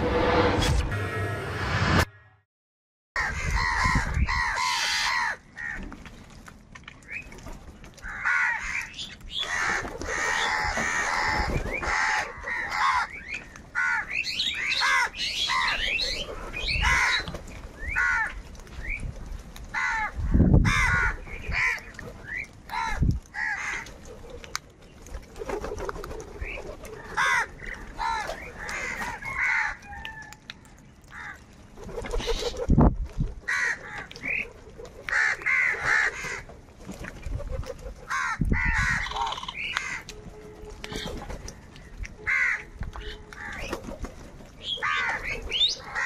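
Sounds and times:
crows cawing: 3.2 - 5.9, 8.0 - 15.8, 16.8 - 17.3, 17.9 - 18.4, 19.7 - 21.9, 22.7 - 23.9, 27.0 - 30.3, 31.1 - 31.5, 33.5 - 34.4, 35.1 - 36.5, 38.1 - 40.1, 42.2 - 43.7, 44.8 - 46.0.

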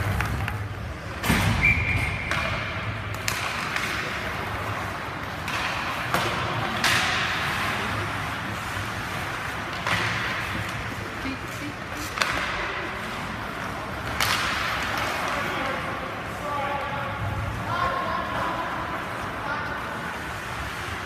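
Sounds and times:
hockey sticks and puck knocks: 0.0 - 11.0, 12.0 - 16.0.

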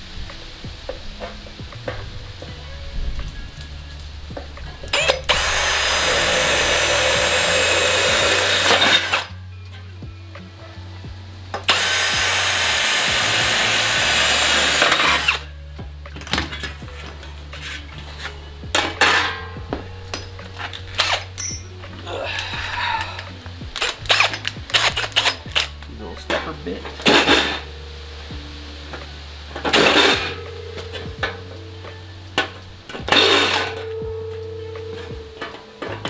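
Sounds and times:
cordless drill boring through metal: 4.9 - 9.3, 11.7 - 15.5, 29.7 - 30.4, 33.1 - 33.8.

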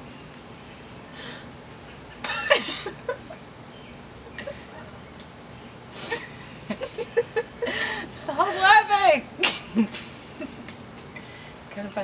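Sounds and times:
person giggling: 2.2 - 3.4, 6.0 - 8.1.

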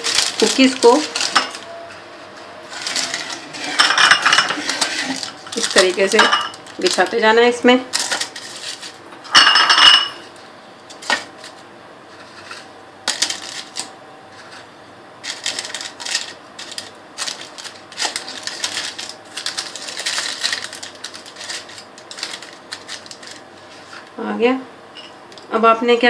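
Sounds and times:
paper rustling and crackling: 0.0 - 1.6, 2.7 - 7.3, 7.9 - 9.0, 10.9 - 24.1.

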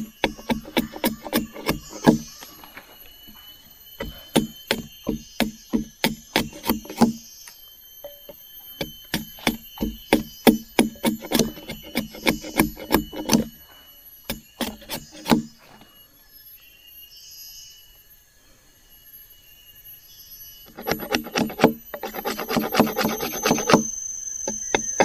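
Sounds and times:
machete chopping wood: 0.0 - 2.3, 4.0 - 7.2, 8.8 - 13.5, 14.3 - 15.5.

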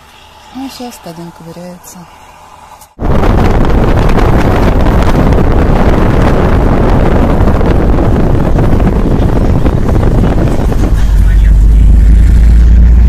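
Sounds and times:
road noise rumble: 0.0 - 13.0
wind buffeting microphone: 2.9 - 13.0.

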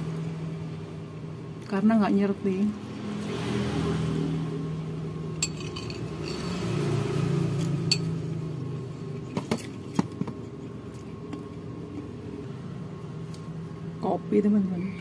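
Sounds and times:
metal spoon scraping a ceramic plate: 5.4 - 6.7.

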